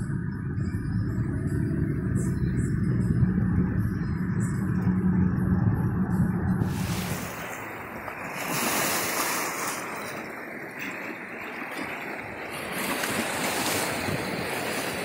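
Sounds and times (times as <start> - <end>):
waves lapping over rocks and pebbles: 6.6 - 15.0.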